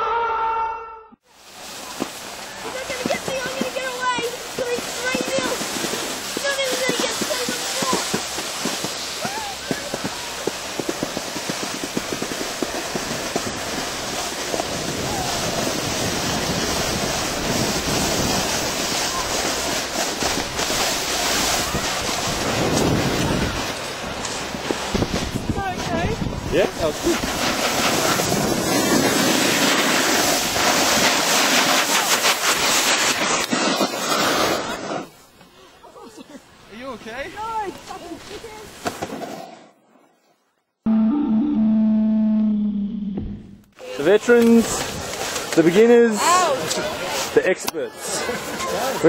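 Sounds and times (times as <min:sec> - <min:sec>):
skis scraping over snow: 0:01.3 - 0:39.6, 0:43.8 - 0:49.0
wind on microphone: 0:09.2 - 0:31.2.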